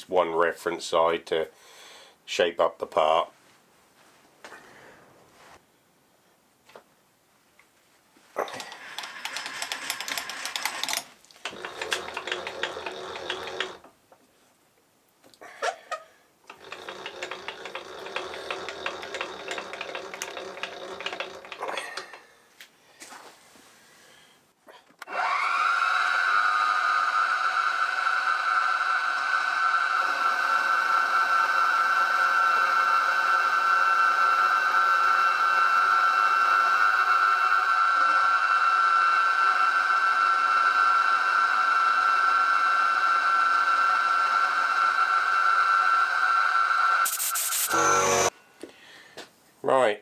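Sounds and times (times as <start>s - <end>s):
end mill cutting steel: 8.6s - 13.8s, 16.5s - 22.2s, 25.1s - 48.3s
milling machine spindle whine: 8.7s - 13.8s, 16.5s - 22.2s, 25.1s - 48.3s.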